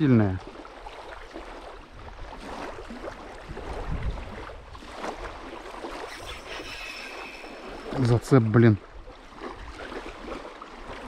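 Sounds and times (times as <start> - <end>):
small waves lapping shore: 0.0 - 11.0
wind buffeting microphone: 1.1 - 11.0
fishing reel being wound: 6.0 - 8.1.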